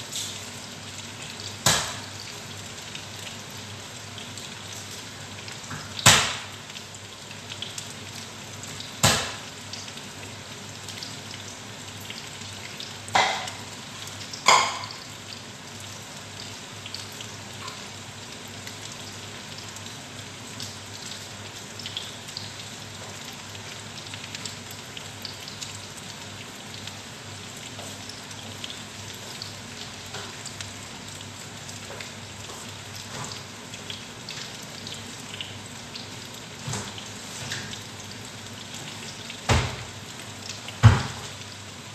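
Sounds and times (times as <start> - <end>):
omelettes sizzling in oil: 0.0 - 41.9
loud sharp oil pops: 6.0 - 6.5, 9.0 - 9.4.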